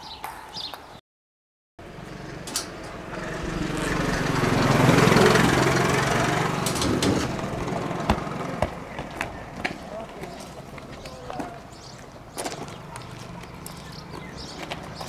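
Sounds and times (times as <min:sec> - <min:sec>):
scooter engine approaching: 0:01.8 - 0:15.0
sharp knocks: 0:06.6 - 0:09.8.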